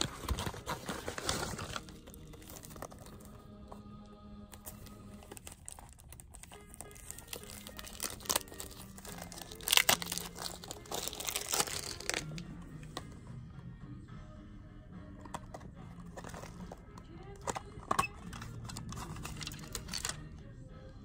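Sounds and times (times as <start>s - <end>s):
cellophane crinkling: 0.0s - 3.4s, 4.5s - 12.5s, 16.1s - 20.2s.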